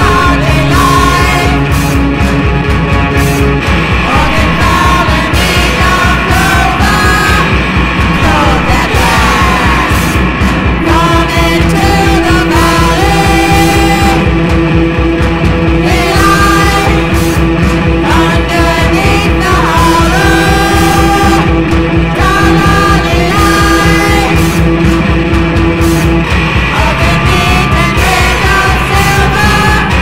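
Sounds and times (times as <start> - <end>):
bellowed vocals: 0.0 - 1.7, 3.9 - 14.4, 17.9 - 24.6, 26.6 - 30.0
droning guitar: 0.0 - 30.0
fast steady drumbeat: 0.0 - 30.0.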